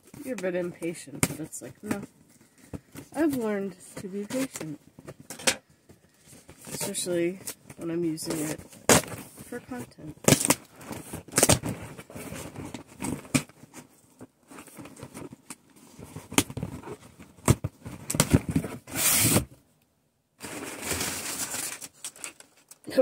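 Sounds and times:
packing tape tearing: 10.2s - 11.8s, 16.4s - 19.5s.

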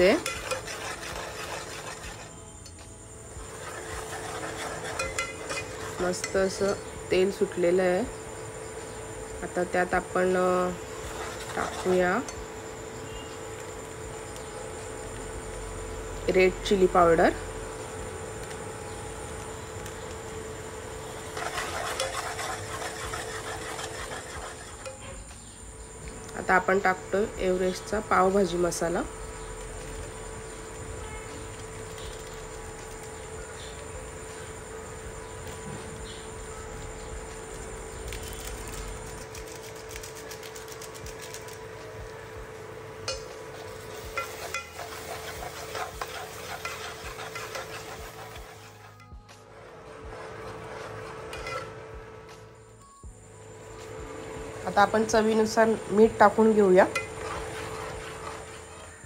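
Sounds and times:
spoon scraping pot: 0.0s - 2.4s, 3.4s - 6.9s, 11.0s - 12.4s, 21.2s - 25.2s, 43.1s - 49.2s, 49.8s - 51.8s, 55.3s - 59.0s
cooktop hum and whine: 0.0s - 59.0s
masala sizzling: 0.0s - 59.0s
spoon clinking against pot: 4.8s - 6.9s.

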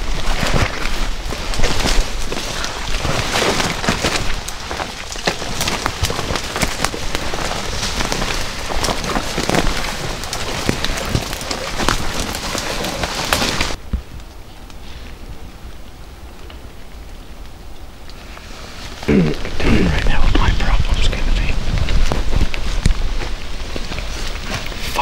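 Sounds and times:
footfalls in brush: 0.0s - 14.0s
twigs snapping: 0.0s - 14.8s
leaves and branches rustling: 0.0s - 25.0s.

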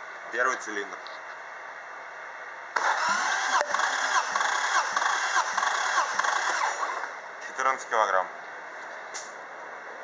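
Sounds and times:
engine cranking on starter: 2.8s - 7.2s.

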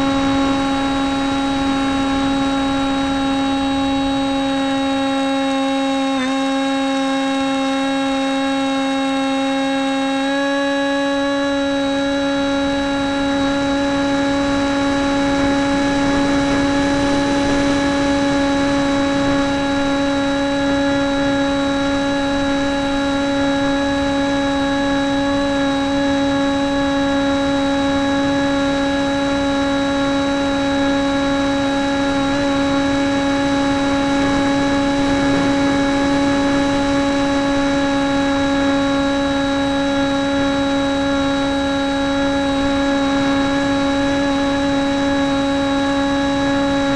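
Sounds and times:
model airplane motor whine: 0.0s - 46.9s
rush of air: 32.0s - 39.2s.

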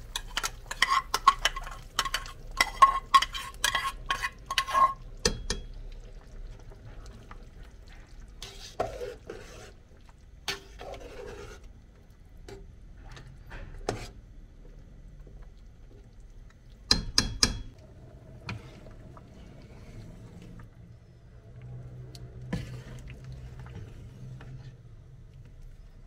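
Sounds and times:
metal spoon scraping a pan: 0.0s - 5.7s, 8.4s - 9.8s, 10.5s - 11.7s, 13.6s - 14.2s, 22.5s - 24.8s
spoon stirring broth: 0.0s - 20.9s, 21.5s - 26.0s.

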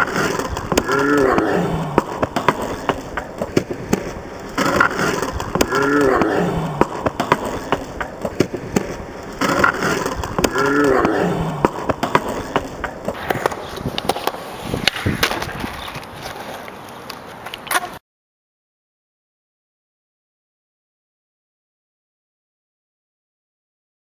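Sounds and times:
skateboard clacking on curb: 0.0s - 18.0s
skateboard rolling on asphalt: 0.0s - 18.0s.

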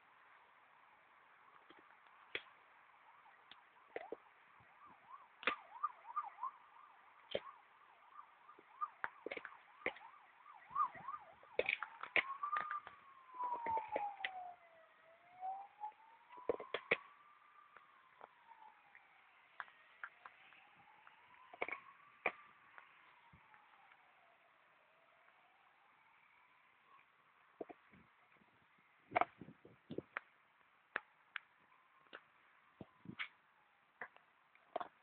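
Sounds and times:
faint siren wailing: 0.0s - 35.0s
wood cracking and crunching: 8.5s - 10.1s, 10.8s - 14.5s.

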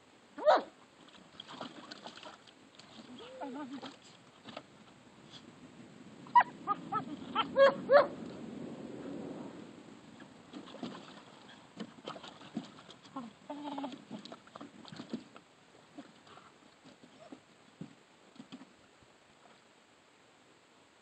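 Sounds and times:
puppies yipping: 6.3s - 8.1s
puppy whining: 6.3s - 8.1s.

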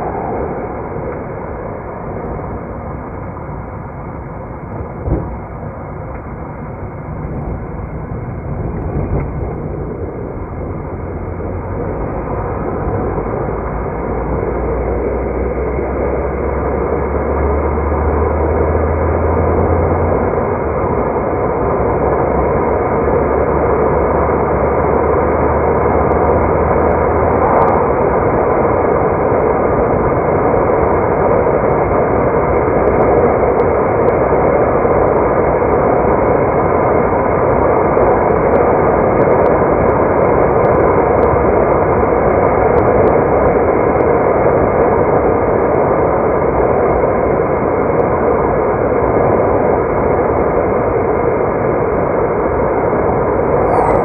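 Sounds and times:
car engine hum: 0.0s - 35.7s, 52.4s - 54.0s
tyre and road noise: 24.1s - 29.2s.

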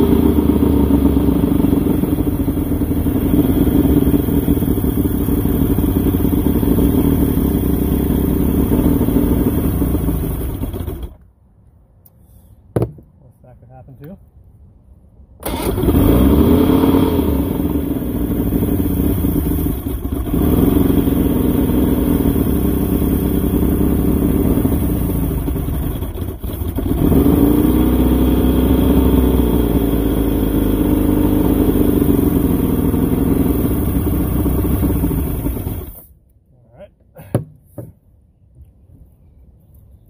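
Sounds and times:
outboard engine starting and revving: 0.0s - 11.2s, 15.4s - 36.1s.

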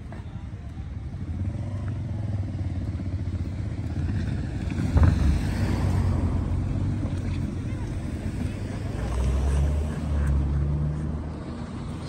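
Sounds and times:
wind rumble on microphone: 3.9s - 9.1s.

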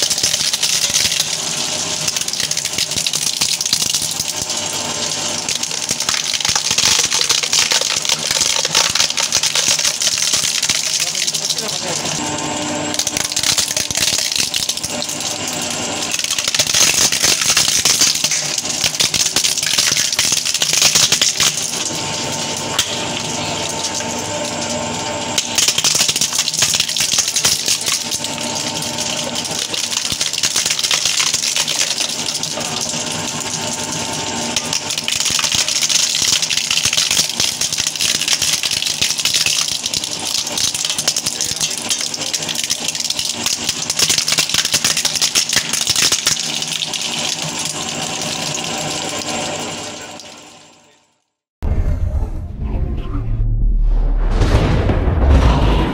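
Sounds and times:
shredder crunching plastic: 0.0s - 50.1s
shredder motor whine: 3.9s - 31.2s, 31.8s - 36.8s.

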